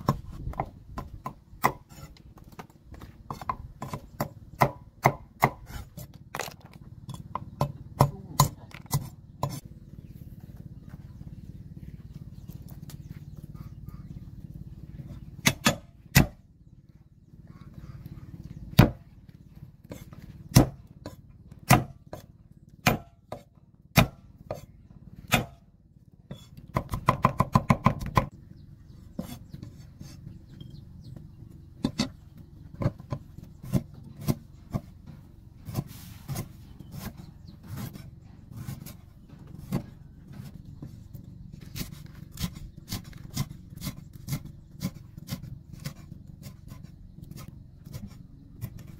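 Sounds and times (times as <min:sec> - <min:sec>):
cleaver chopping on wooden block: 0:00.0 - 0:06.7, 0:07.3 - 0:09.6, 0:15.4 - 0:16.4, 0:18.8 - 0:19.0, 0:19.9 - 0:24.6, 0:25.3 - 0:25.6, 0:26.3 - 0:28.3.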